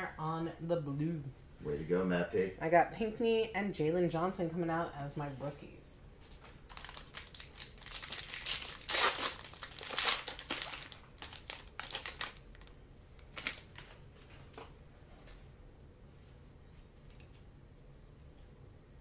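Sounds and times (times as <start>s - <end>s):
foil wrapper tearing and crinkling: 6.7s - 14.0s.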